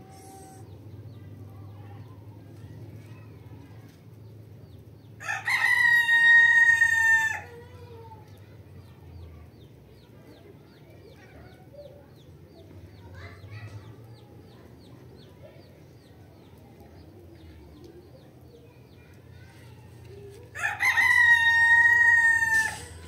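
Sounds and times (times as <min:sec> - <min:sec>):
rooster crowing: 0:05.2 - 0:07.5, 0:20.6 - 0:23.0.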